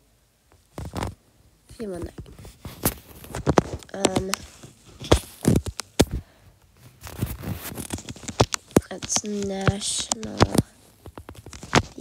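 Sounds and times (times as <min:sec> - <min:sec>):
fingers tapping on touchscreen: 0:07.8 - 0:12.0.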